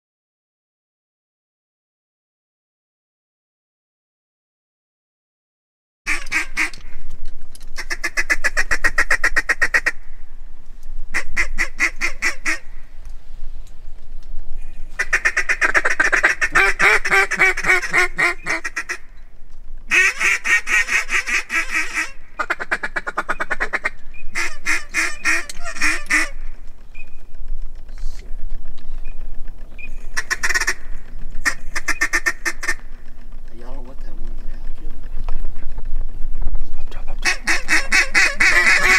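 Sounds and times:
ducks quacking: 6.1s - 6.9s, 7.8s - 10.0s, 11.1s - 12.8s, 14.7s - 19.1s, 19.9s - 26.6s, 29.9s - 33.0s, 37.2s - 38.9s.

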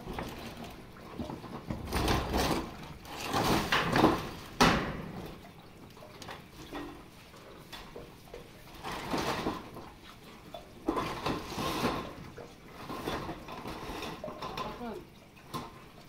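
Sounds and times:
metal roofing sheet scraping: 11.0s - 14.8s.

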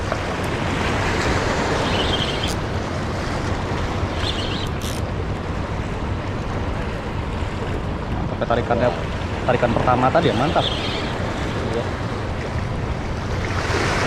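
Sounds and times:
water washing against seawall: 8.8s - 14.0s.

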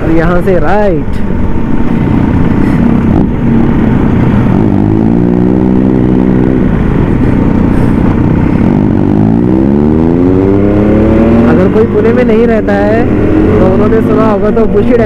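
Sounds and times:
motorcycle engine revving: 1.7s - 15.0s.

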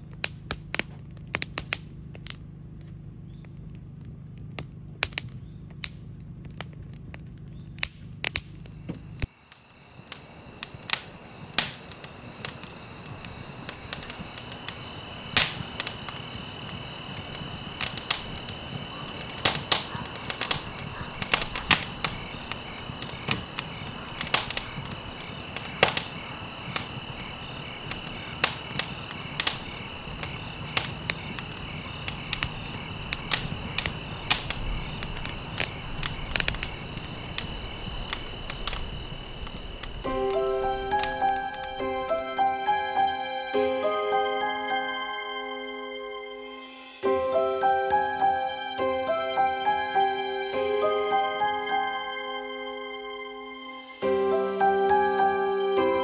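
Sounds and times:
campfire crackling and popping: 0.0s - 43.3s
insects chirring: 0.0s - 56.0s.

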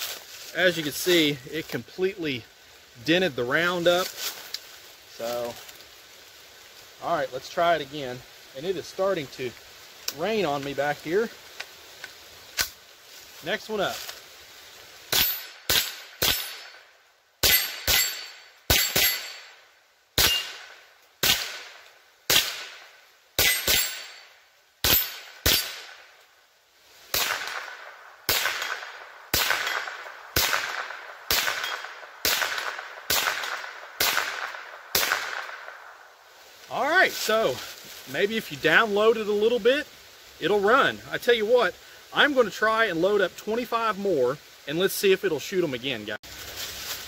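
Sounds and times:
rifle shots with ringing tail: 15.1s - 16.8s, 17.4s - 19.6s, 20.2s - 26.1s, 27.1s - 35.8s.

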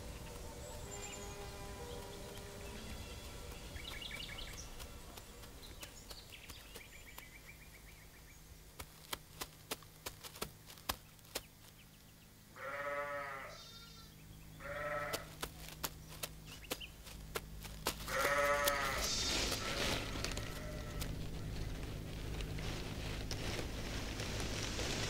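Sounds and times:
sheep bleating: 12.6s - 15.4s, 18.0s - 21.6s.

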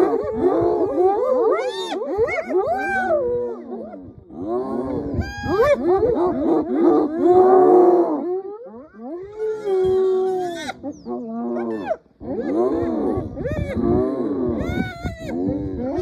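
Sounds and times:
hyenas giggling and squealing: 8.8s - 14.0s, 14.6s - 16.0s.

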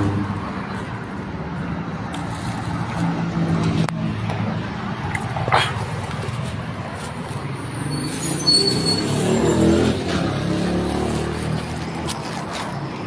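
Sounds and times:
steady traffic noise: 0.0s - 13.0s
vehicle passing close by: 0.0s - 13.0s
brief high squeal: 7.9s - 9.5s.

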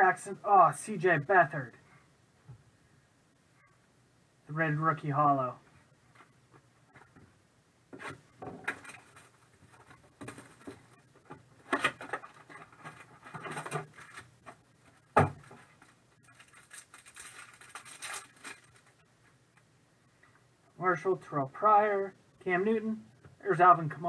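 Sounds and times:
cardboard box and foil rustling: 8.6s - 11.0s, 11.8s - 14.4s, 15.0s - 19.0s.

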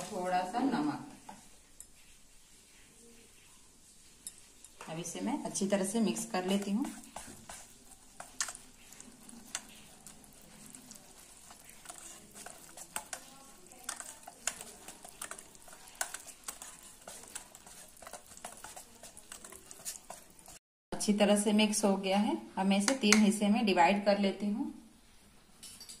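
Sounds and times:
whisk stirring batter: 0.0s - 20.6s
whisk wires clicking on bowl: 4.2s - 20.6s, 22.8s - 23.4s.

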